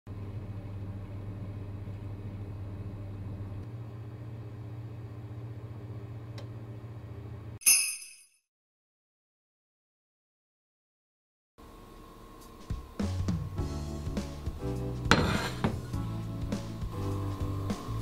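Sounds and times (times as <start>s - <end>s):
electric oven humming: 0.1s - 7.6s, 11.6s - 18.0s.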